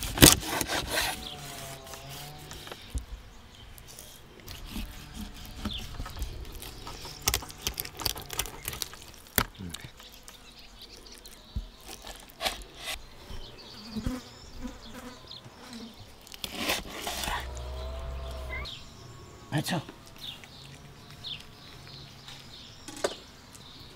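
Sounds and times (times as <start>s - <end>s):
knife scraping fish skin: 3.9s - 9.1s, 16.3s - 17.4s.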